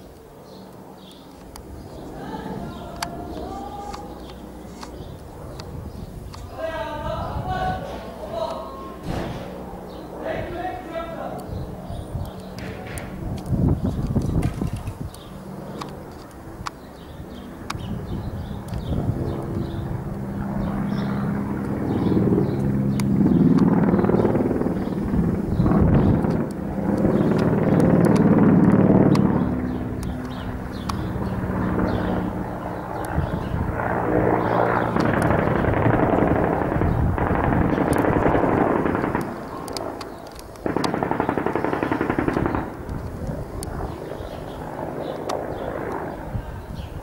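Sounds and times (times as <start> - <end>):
helicopter rotor drone: 0.0 - 47.0
automatic gunfire bursts: 35.0 - 40.0, 40.6 - 42.9.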